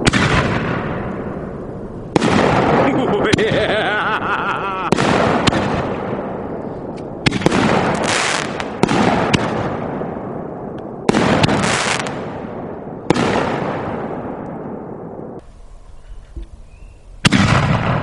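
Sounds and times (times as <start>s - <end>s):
firework shells booming: 0.0s - 15.4s, 17.2s - 18.0s.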